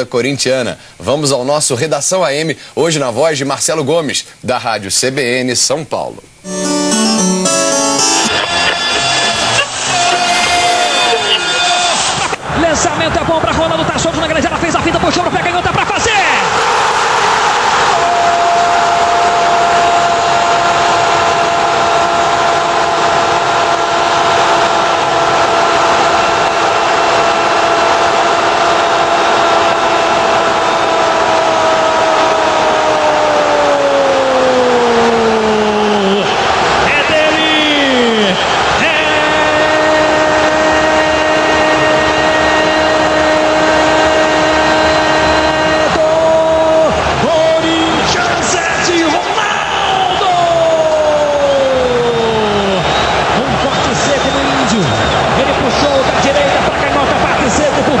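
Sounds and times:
crowd noise: 6.4s - 13.0s, 52.6s - 58.0s.

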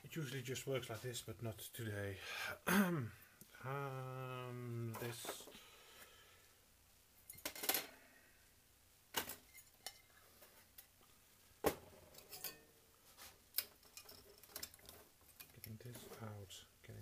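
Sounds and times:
tools set down on metal workbench: 7.3s - 7.9s, 9.1s - 10.0s, 11.6s - 12.7s.

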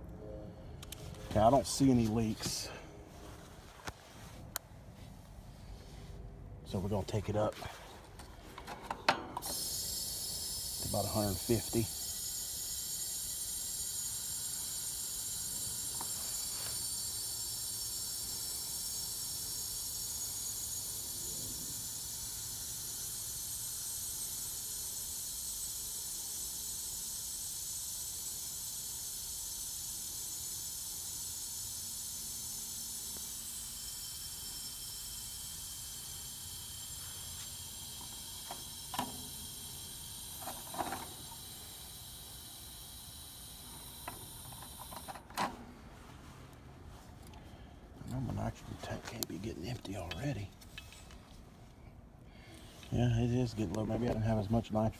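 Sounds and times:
nitrogen hissing from cylinder: 9.4s - 45.2s.

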